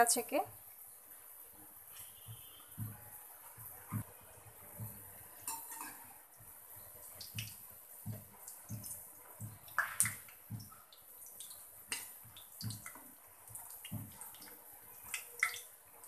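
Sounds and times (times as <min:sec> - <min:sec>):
cakes sizzling in hot oil: 0:03.5 - 0:15.8.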